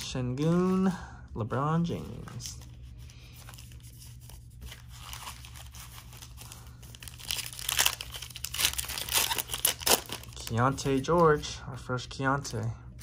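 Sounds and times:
foil wrapper tearing and crinkling: 0:04.7 - 0:10.9.

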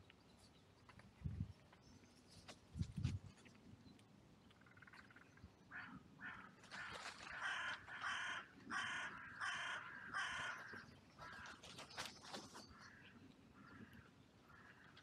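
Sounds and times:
crow cawing: 0:05.7 - 0:11.6, 0:12.9 - 0:15.0.

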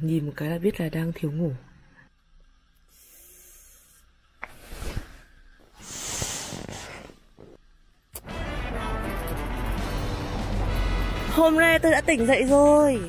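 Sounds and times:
music: 0:08.2 - 0:13.0.

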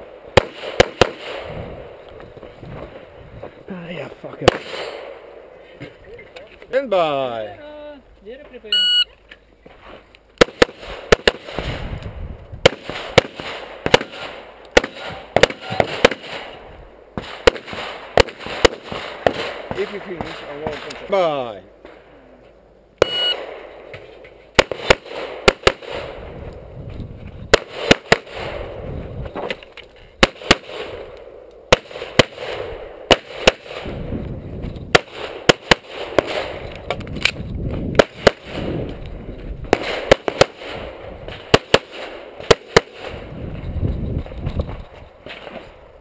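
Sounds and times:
shot timer beep: 0:08.7 - 0:09.1, 0:23.0 - 0:23.4.

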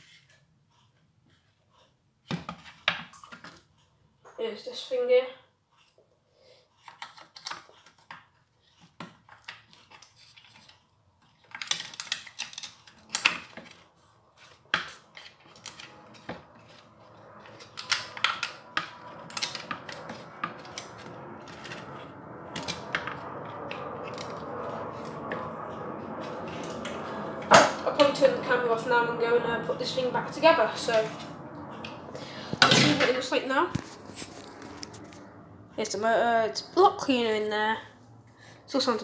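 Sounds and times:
steady rushing noise: 0:15.8 - 0:39.0.

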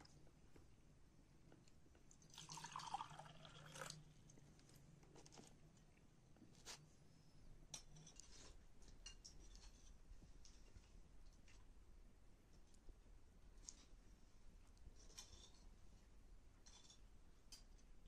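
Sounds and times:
drink pouring into ceramic cup: 0:02.3 - 0:04.1.

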